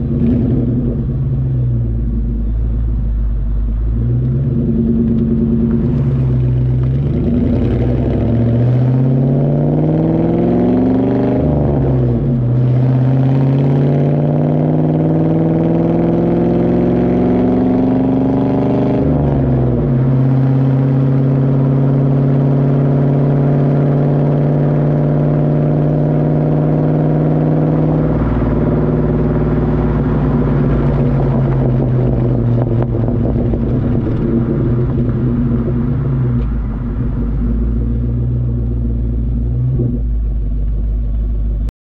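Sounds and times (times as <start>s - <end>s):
car exhaust revving: 0.0s - 41.7s.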